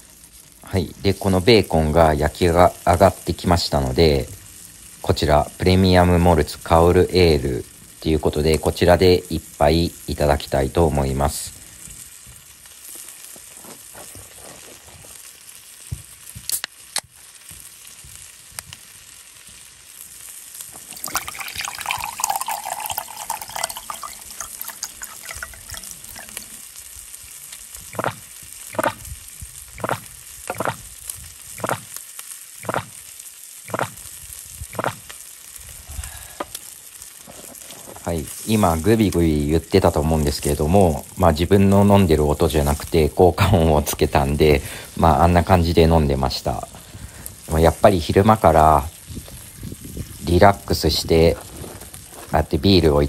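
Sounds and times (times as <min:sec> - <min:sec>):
bacon sizzling in a frying pan: 0:00.0 - 0:53.0
gulping sound effect: 0:27.9 - 0:28.2, 0:28.8 - 0:29.0, 0:29.8 - 0:30.8, 0:34.7 - 0:35.0.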